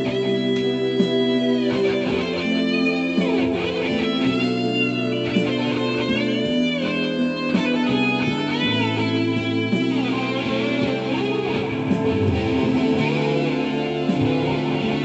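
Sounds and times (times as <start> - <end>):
bass and held chords: 0.0 - 15.0
electric guitar lead line: 0.0 - 15.0.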